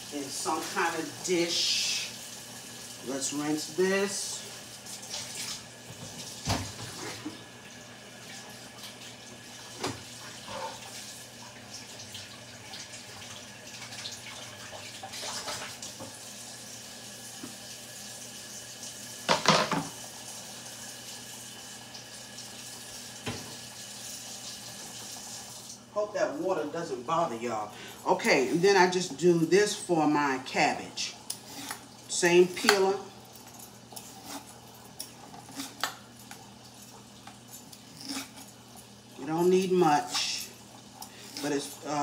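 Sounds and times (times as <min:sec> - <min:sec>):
tap running into a metal sink: 0:23.2 - 0:23.6.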